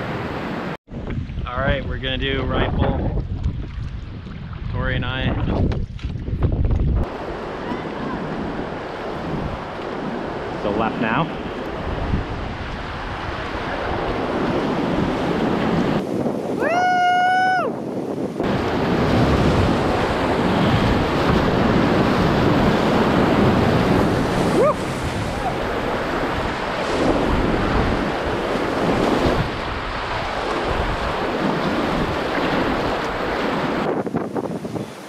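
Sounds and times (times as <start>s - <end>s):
wind buffeting microphone: 0.0s - 35.0s
whitewater rushing: 18.4s - 34.0s.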